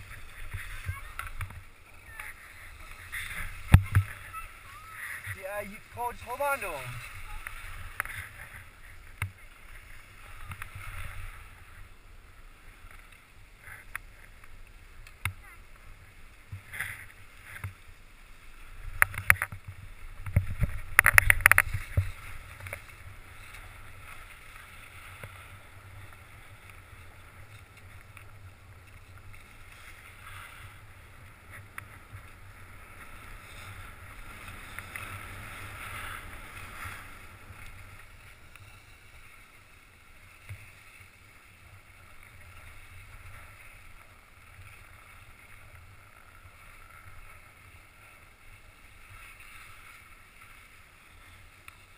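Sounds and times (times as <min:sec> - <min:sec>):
skis sliding over snow: 0:00.0 - 0:51.9.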